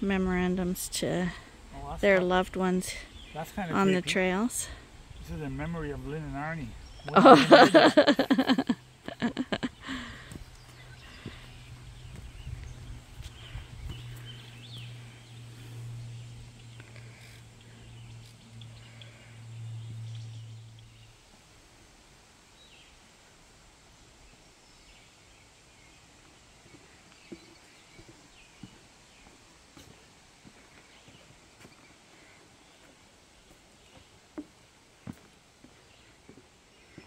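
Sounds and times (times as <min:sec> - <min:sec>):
wind buffeting microphone: 0:11.3 - 0:14.9.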